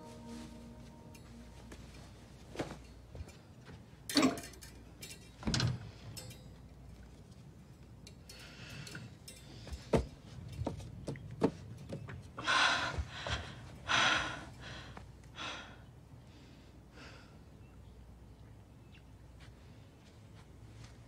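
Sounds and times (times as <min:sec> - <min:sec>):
wire hangers clicking: 0:04.1 - 0:06.9, 0:08.0 - 0:09.9.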